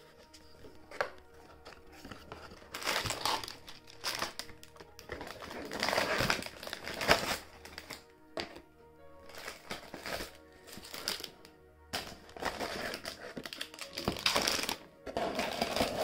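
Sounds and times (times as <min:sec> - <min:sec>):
soft background music: 0:00.0 - 0:16.0
packaging crinkling: 0:00.2 - 0:08.1, 0:09.2 - 0:16.0
cardboard box tearing open: 0:02.7 - 0:04.4, 0:05.1 - 0:07.9.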